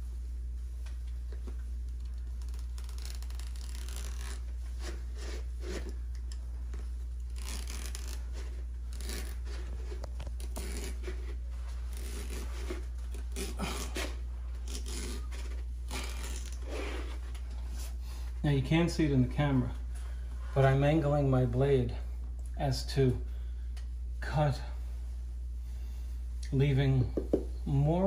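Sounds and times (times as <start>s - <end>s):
steady low hum: 0.0s - 28.0s
knife cutting wallpaper: 2.4s - 5.9s, 7.3s - 17.2s.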